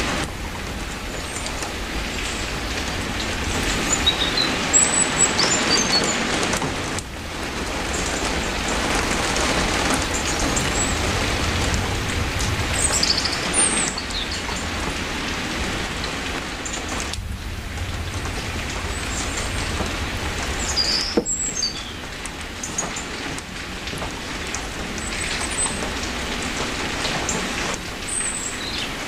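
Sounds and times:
steady rain falling: 0.0 - 29.0.

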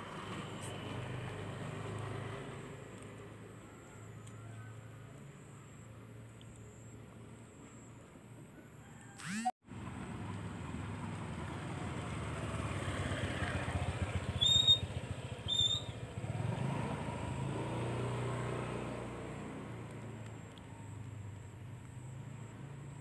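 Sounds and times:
vehicle engine passing: 0.0 - 4.0, 9.2 - 20.7.

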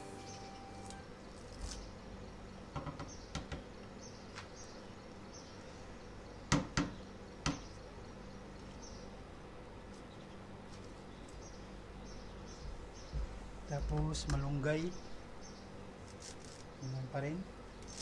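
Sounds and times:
faint insect chirping: 0.0 - 3.0.

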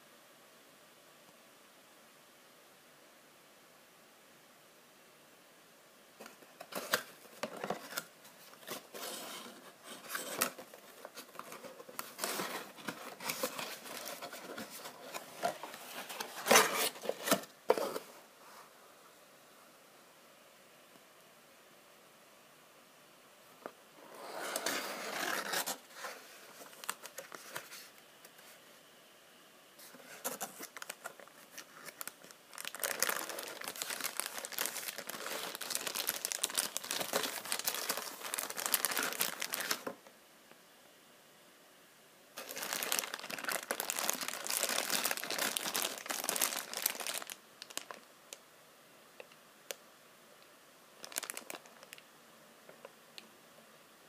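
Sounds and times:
plastic bag crinkling: 30.2 - 39.9, 42.4 - 48.1, 51.0 - 52.0.

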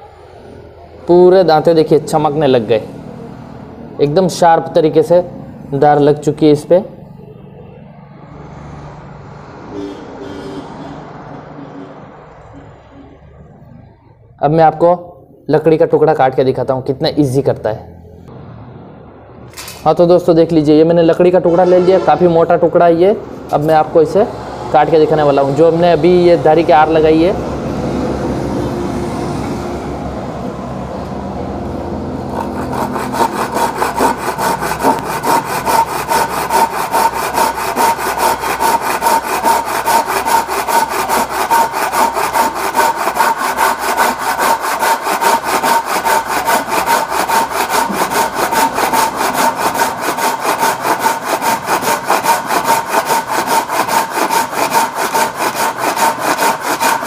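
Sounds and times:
hand saw cutting wood: 32.2 - 57.0.

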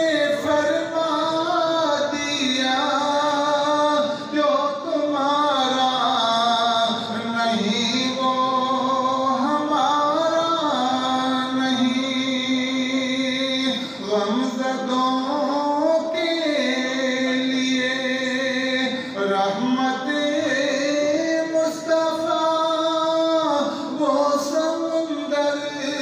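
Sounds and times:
man singing unaccompanied: 0.0 - 26.0.

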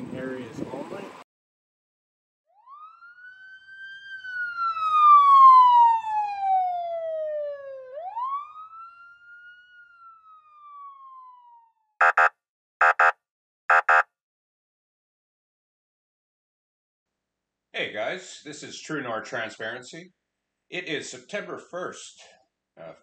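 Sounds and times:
wailing siren: 2.5 - 13.1, 13.7 - 14.0
double beeps: 12.0 - 14.0.

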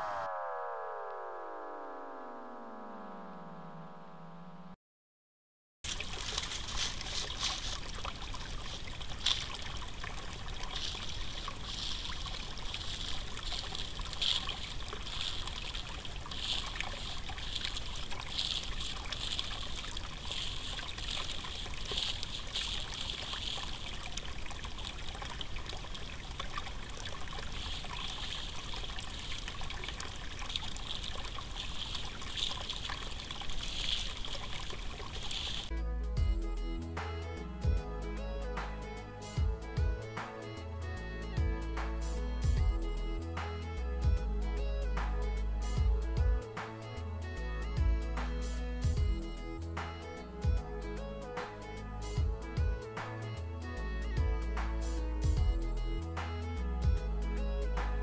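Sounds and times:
creek trickling over stones: 5.8 - 35.7.

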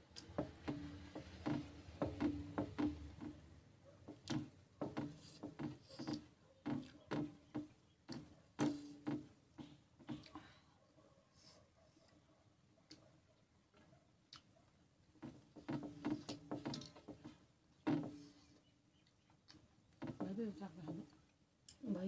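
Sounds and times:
wet chewing smacks: 14.2 - 14.6.

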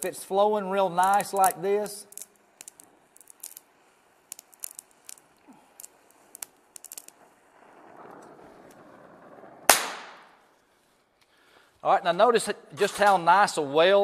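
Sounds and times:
crackling and popping of melting rod: 0.0 - 8.9, 9.6 - 10.6.

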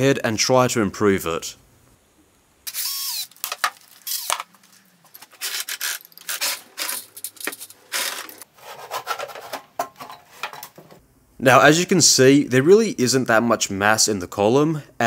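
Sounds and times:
metal scraping and rubbing: 5.1 - 10.8.

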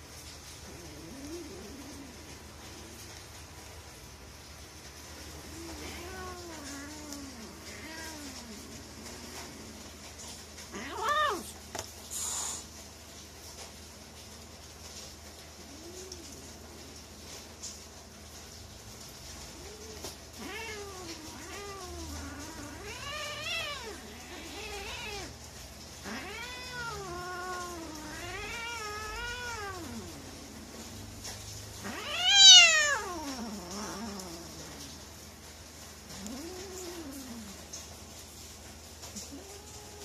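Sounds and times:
cat yowling and meowing: 0.7 - 2.4, 5.4 - 9.9, 10.7 - 11.6, 19.5 - 31.1, 31.8 - 35.0, 36.1 - 37.7, 39.2 - 40.0.

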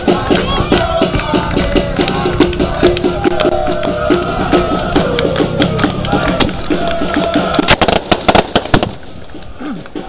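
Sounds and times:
crowd chanting: 0.0 - 8.3
drums beating fast rhythm: 0.0 - 10.0
firecracker pops: 5.0 - 10.0.

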